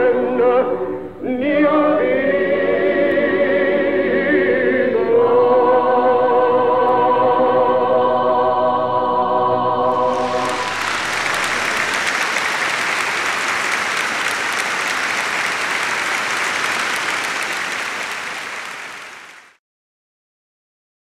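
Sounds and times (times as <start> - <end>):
choir and orchestra chord: 0.0 - 17.8
audience applause: 9.9 - 19.6.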